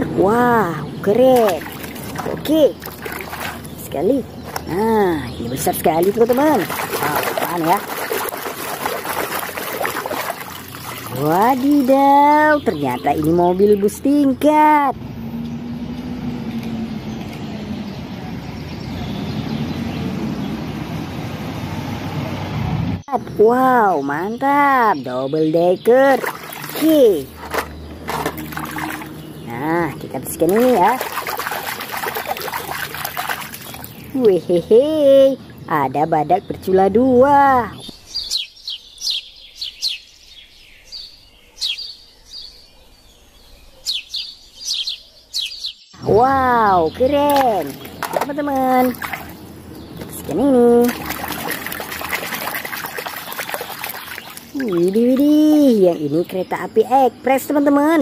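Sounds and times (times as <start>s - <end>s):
small birds chirping: 0.0s - 21.6s, 23.0s - 58.0s
street traffic noise: 0.0s - 38.4s, 46.0s - 58.0s
bus engine driving past: 14.9s - 23.1s.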